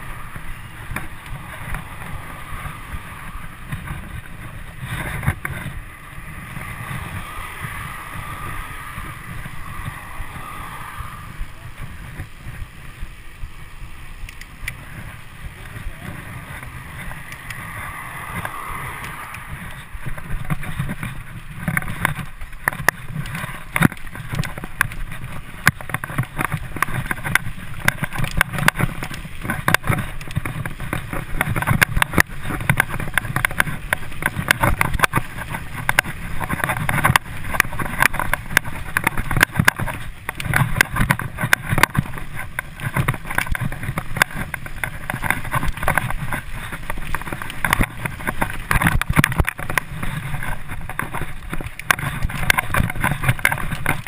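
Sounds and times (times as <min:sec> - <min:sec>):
bike tyre rolling noise: 0:00.0 - 0:54.0
wind rumble on microphone: 0:00.0 - 0:54.0
clatter of knocks and rattles: 0:19.5 - 0:54.0.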